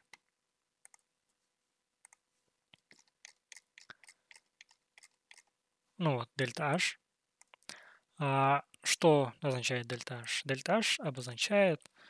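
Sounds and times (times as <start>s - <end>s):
mouse and keyboard clicking: 2.8s - 5.5s.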